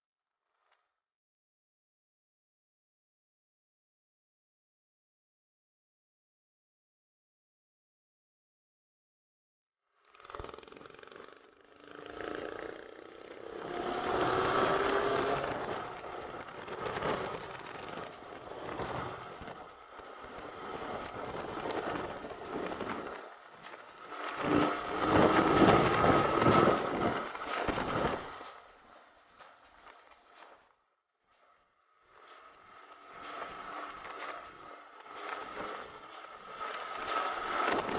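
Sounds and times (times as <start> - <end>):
motorcycle engine: 10.2 - 28.7, 32.2 - 37.9
wind buffeting microphone: 18.2 - 28.4.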